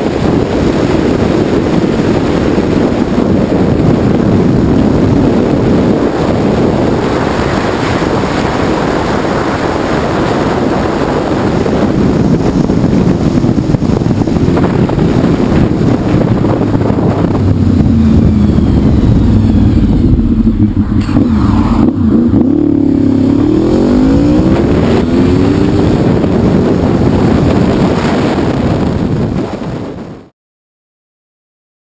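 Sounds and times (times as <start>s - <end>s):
motorcycle engine running: 0.0s - 30.2s
wind rushing over camera: 0.0s - 30.3s.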